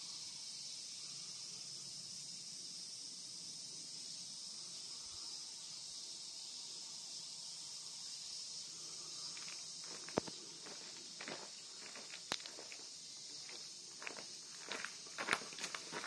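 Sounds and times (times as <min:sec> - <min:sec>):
high-pitched insect chorus: 0:00.0 - 0:16.0
footsteps on dry leaves: 0:09.8 - 0:12.8, 0:13.4 - 0:16.0.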